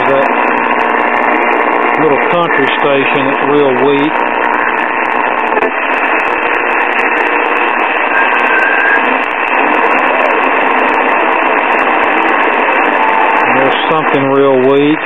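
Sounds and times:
radio static hiss: 0.0 - 15.0
weak radio station: 0.0 - 15.0
faint radio whistle: 7.7 - 9.3.

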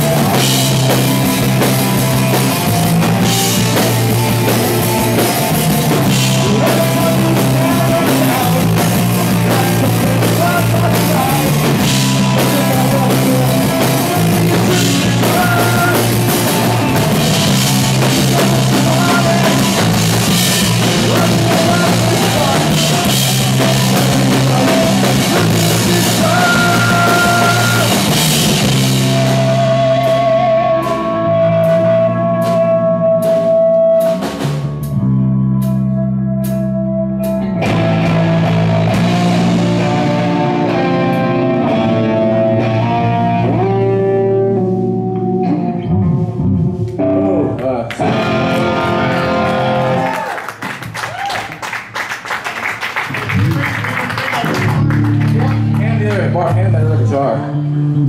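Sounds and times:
drum kit with cymbals: 0.0 - 35.0
bass guitar: 0.0 - 58.0
electric guitar: 0.0 - 58.0.

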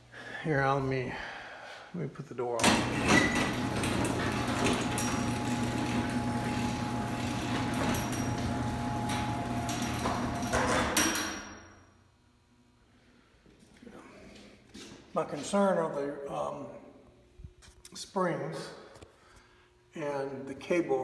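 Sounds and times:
garage door motor humming: 2.6 - 11.8.

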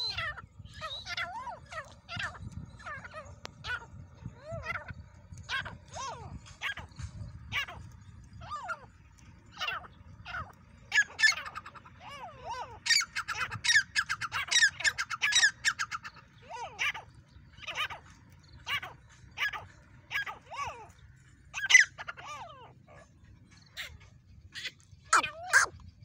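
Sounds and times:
francolins calling: 0.0 - 26.0.

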